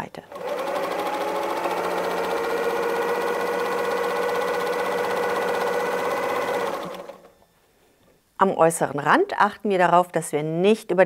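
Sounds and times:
sewing machine running: 0.3 - 7.4.

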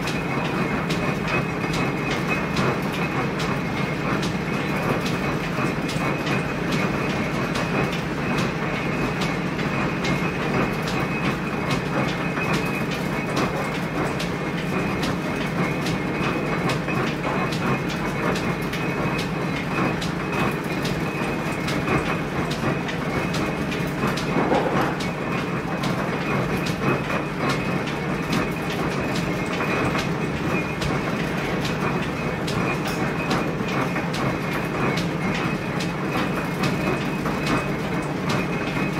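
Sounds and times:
mill machine rattling: 0.0 - 38.9.

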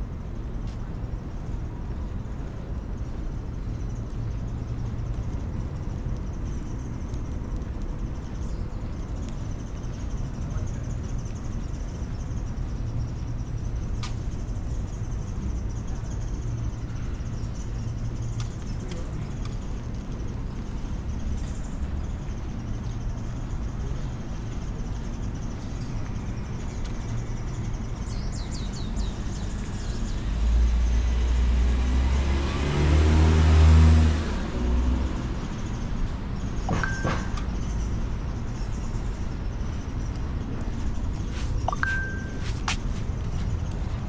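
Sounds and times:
street traffic: 0.0 - 44.0
car driving past close by: 30.6 - 35.4.

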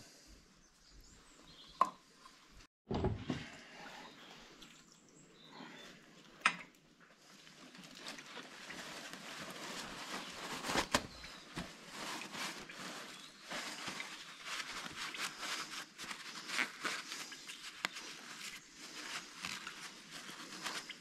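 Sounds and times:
rustling: 7.0 - 21.0.

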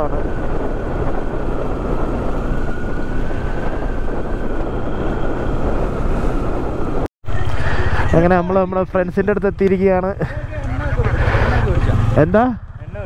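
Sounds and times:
motorcycle engine running: 7.3 - 13.0.

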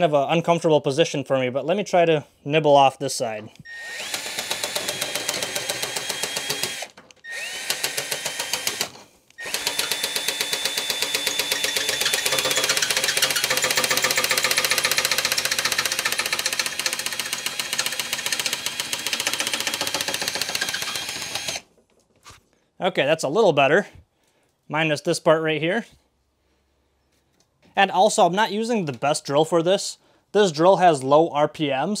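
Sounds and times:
drill motor whine: 3.7 - 14.4, 18.6 - 21.6.

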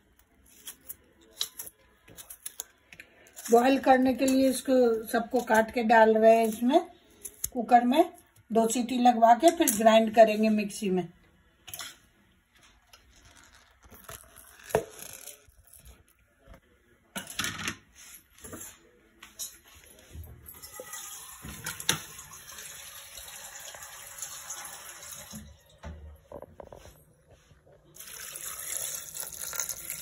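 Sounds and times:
water running from tap: 20.5 - 25.8, 28.0 - 30.0.

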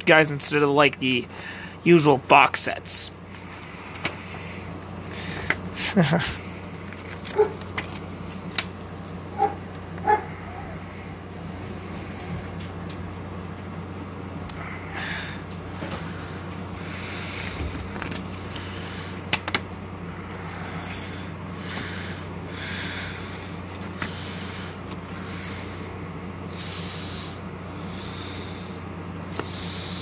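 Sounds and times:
steady low hum: 0.0 - 30.0
paper pages rustling: 6.8 - 9.3, 17.3 - 19.8, 23.4 - 25.2.

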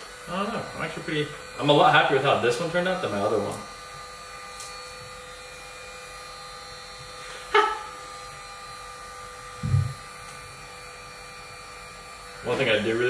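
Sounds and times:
heat gun fan hum and whine: 0.0 - 13.0
short low thud: 9.6 - 10.0.

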